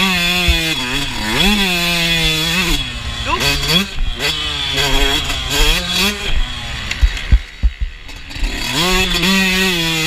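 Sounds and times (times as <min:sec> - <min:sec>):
motocross bike engine revving: 0:00.0 - 0:10.0
sharp thumps: 0:00.2 - 0:01.0, 0:05.6 - 0:08.2.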